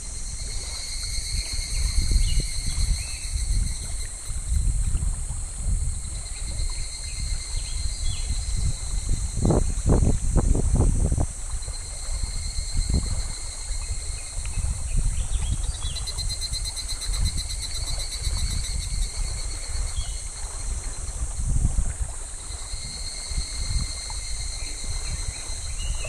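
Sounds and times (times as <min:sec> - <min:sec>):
cicadas droning: 0:00.0 - 0:26.0
rapidly pulsing cicada song: 0:00.0 - 0:26.0.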